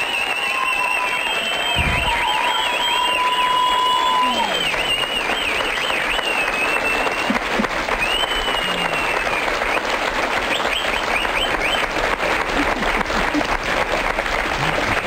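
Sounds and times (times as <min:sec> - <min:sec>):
high whistles: 0:00.0 - 0:07.3, 0:08.0 - 0:09.8, 0:10.5 - 0:11.9
audience applauding: 0:00.0 - 0:15.0.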